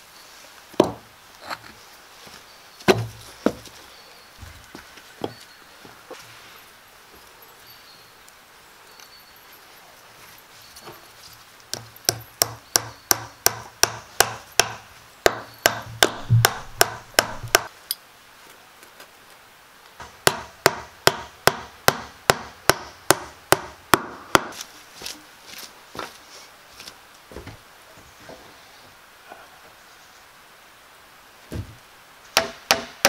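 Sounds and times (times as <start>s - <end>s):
hammer driving nails: 12.1s - 17.7s, 32.4s - 33.0s.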